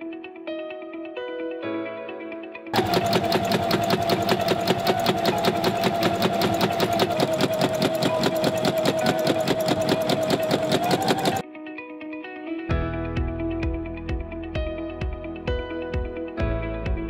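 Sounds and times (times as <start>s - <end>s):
sewing machine running: 2.8s - 11.4s.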